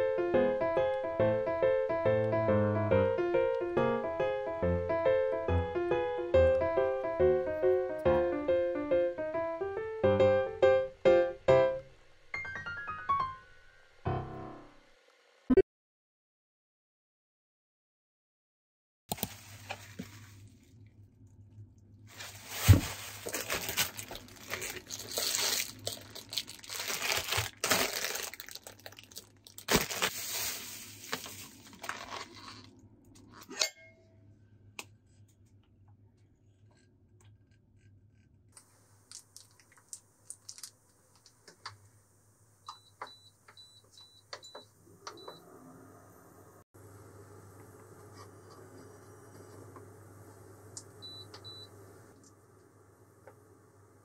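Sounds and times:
plastic packaging crinkling and tearing: 22.1 - 32.7, 39.1 - 41.2.

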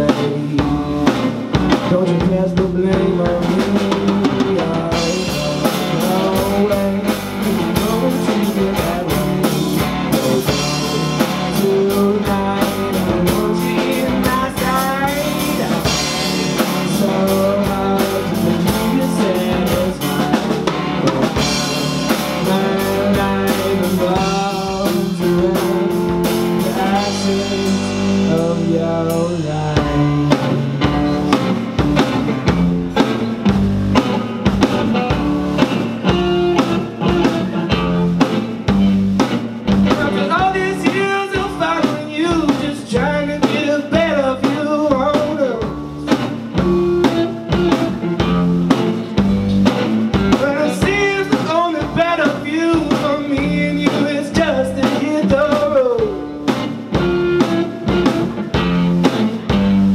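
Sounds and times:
man singing: 0.0 - 33.2, 36.0 - 38.4, 39.7 - 49.1, 50.3 - 58.9
live rock band playing: 0.0 - 59.9
drum kit quick hits: 0.1 - 42.8.

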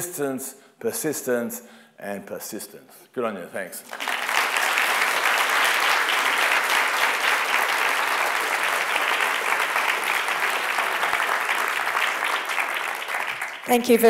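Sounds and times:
audience applauding: 3.9 - 14.0.

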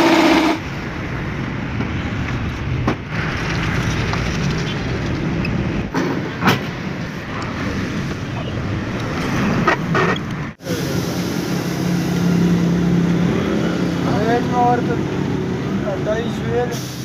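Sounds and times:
vehicle traffic hum: 0.0 - 17.0.

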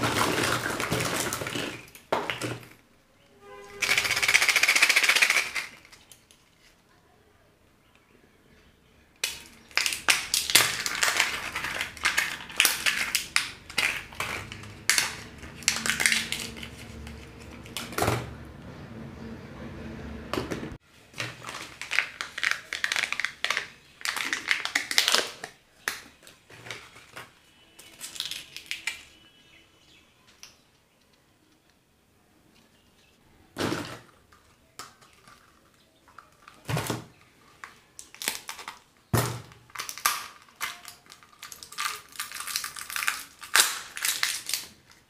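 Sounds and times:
plastic cracking and clicking: 9.2 - 18.0, 21.2 - 29.2, 34.0 - 45.0
wrappers crinkling and tearing: 9.3 - 17.9, 21.1 - 29.2, 37.2 - 39.0, 39.6 - 45.0.

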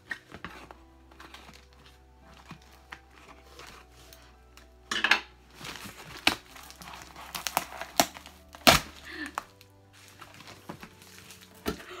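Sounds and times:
quiet background music: 0.0 - 12.0
cardboard box being torn open: 5.6 - 9.6.

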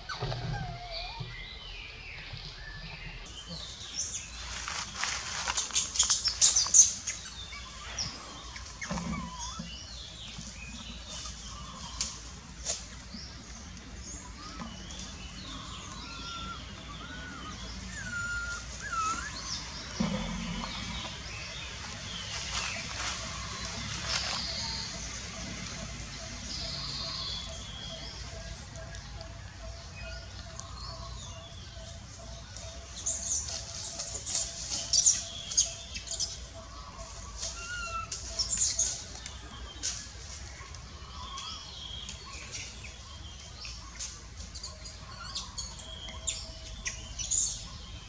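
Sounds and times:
forest birds chirping: 0.0 - 48.0.

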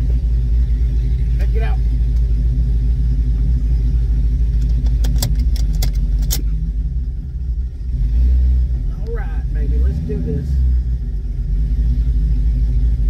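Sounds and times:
truck engine droning: 0.0 - 13.0
sharp clicks: 4.5 - 6.5.

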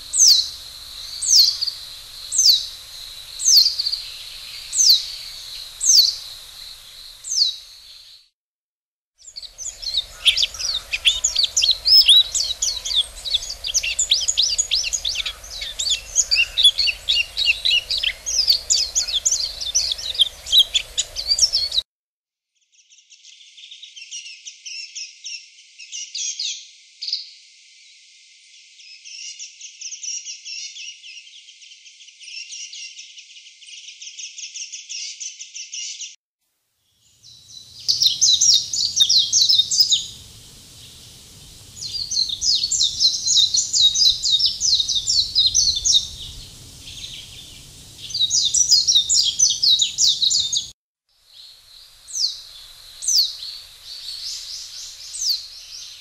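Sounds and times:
songbirds twittering: 0.0 - 8.2, 9.3 - 21.8, 37.0 - 50.7, 51.3 - 56.0
falling whistled bird notes: 37.6 - 50.7.

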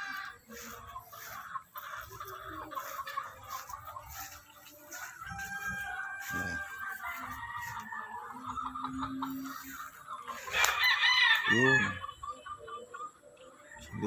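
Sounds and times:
rooster crowing: 4.9 - 8.5, 10.4 - 12.0.

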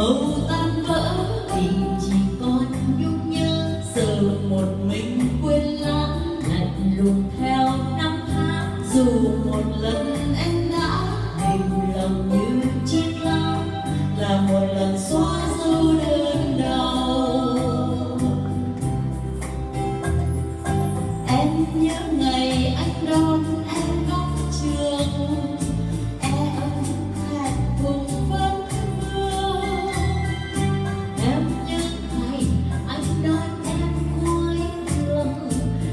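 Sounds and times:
women singing a duet: 0.0 - 18.8, 21.2 - 35.9
backing music with beat: 0.0 - 35.9
keyboard accompaniment: 0.0 - 35.9.

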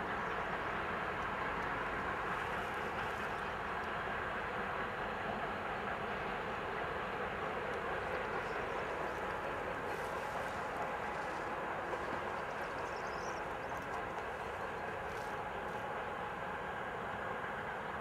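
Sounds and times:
freight train rumbling: 0.0 - 18.0.

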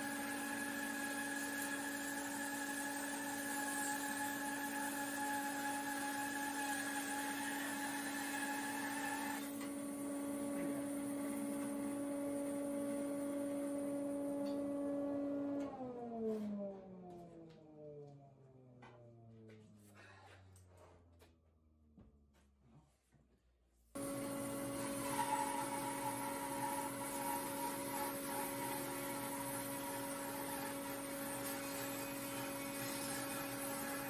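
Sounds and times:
bandsaw running: 0.0 - 9.6, 24.0 - 34.0
saw cutting wood: 0.0 - 9.6, 24.0 - 34.0
saw winding down: 24.0 - 34.0.

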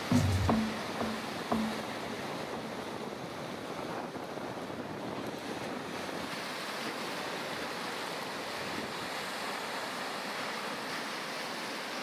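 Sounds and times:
background music: 0.0 - 2.2
waves breaking on shore: 0.0 - 12.0.

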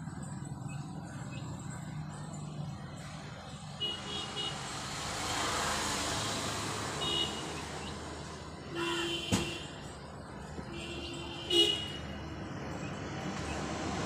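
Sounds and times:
vehicle passing: 4.5 - 8.6, 12.0 - 14.0.

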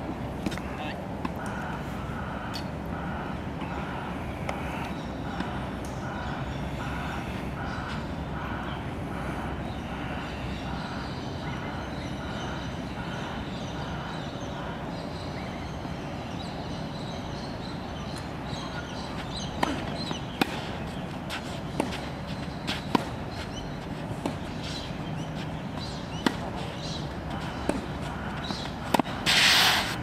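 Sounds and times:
outdoor background noise: 0.0 - 30.0
tennis ball hit and bouncing: 18.9 - 29.9.

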